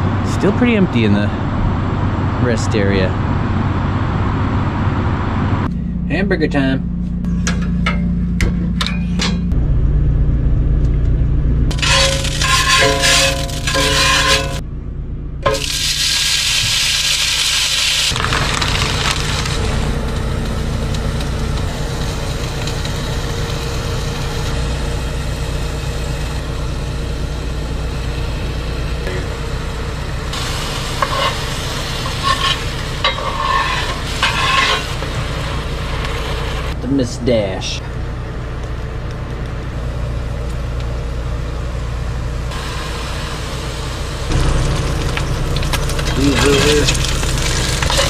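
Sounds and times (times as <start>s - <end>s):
steady low hum: 0.0s - 16.1s, 18.2s - 48.0s
metal spatula scraping pan: 11.7s - 14.6s, 30.9s - 36.0s
patties sizzling in a skillet: 15.5s - 19.8s, 30.3s - 36.8s, 42.6s - 48.0s.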